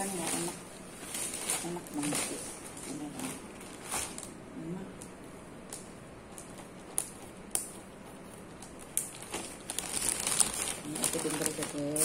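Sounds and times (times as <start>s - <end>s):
plastic bag clicks and crinkles: 0.0s - 4.4s, 8.6s - 12.0s.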